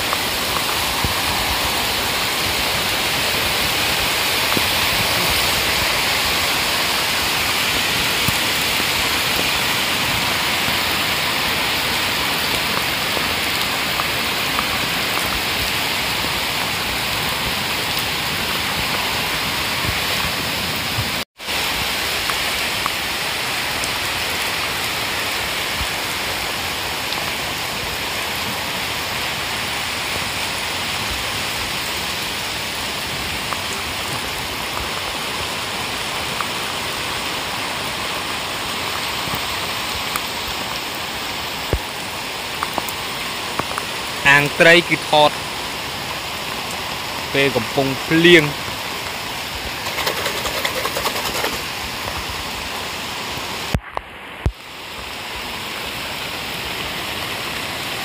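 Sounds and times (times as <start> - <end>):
heavy rain on pond water: 0.0 - 58.0.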